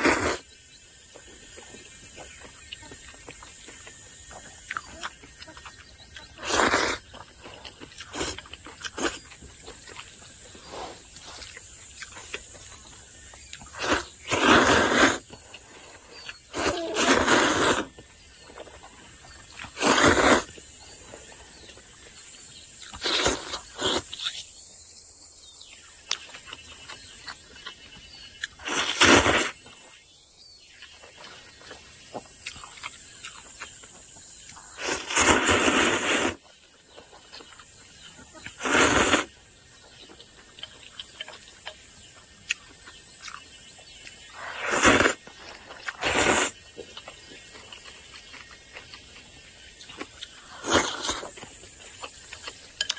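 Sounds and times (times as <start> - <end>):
person slurping noodles: 0.0 - 0.5, 6.4 - 7.1, 13.7 - 15.3, 16.4 - 18.0, 19.7 - 20.6, 22.9 - 24.3, 28.6 - 29.6, 34.7 - 36.4, 38.5 - 39.3, 44.4 - 45.2, 45.8 - 46.6, 50.4 - 51.3.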